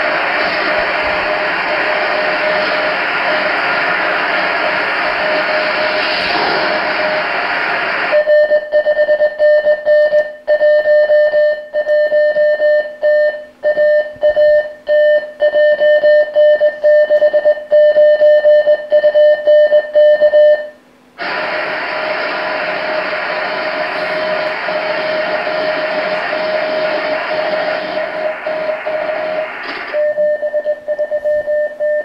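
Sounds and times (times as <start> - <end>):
receiver hiss: 0.0 - 8.6, 21.1 - 31.2
morse code tone: 8.1 - 32.0.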